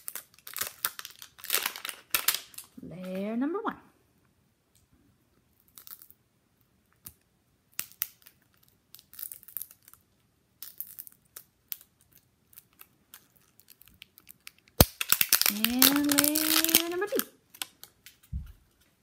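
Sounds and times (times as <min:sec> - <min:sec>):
plastic wrapping tearing: 0:00.0 - 0:03.2, 0:10.6 - 0:18.4.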